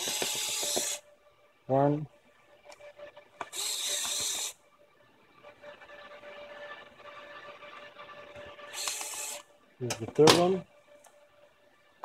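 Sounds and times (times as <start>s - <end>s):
electric screwdriver whine: 0.0s - 1.0s, 3.4s - 4.6s, 8.3s - 9.5s.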